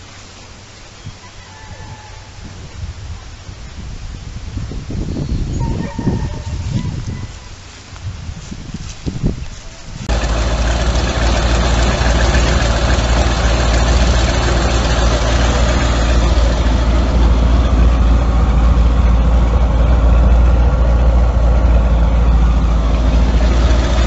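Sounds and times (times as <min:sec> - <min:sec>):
boat engine idling: 0:10.1 - 0:24.0.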